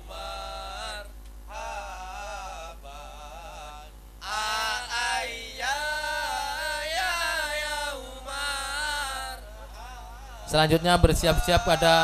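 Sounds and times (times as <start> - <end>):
electrical hum: 0.0 - 12.0
man chanting a sung prayer: 0.0 - 12.0.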